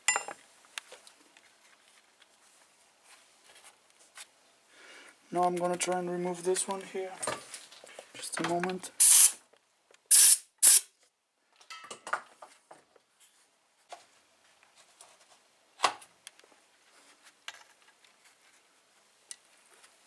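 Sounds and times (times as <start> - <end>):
loud hissing bursts: 9.0 - 9.4, 10.1 - 10.9.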